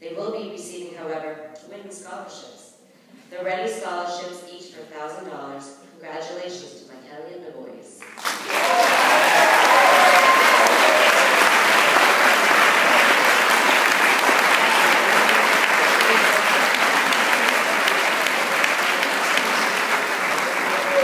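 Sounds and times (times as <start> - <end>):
audience applauding: 8.0 - 21.0.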